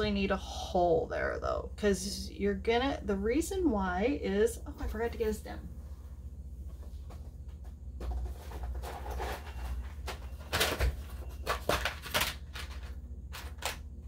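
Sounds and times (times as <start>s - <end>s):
steady low hum: 0.0s - 14.0s
rummaging knocks and rustles: 6.7s - 13.8s.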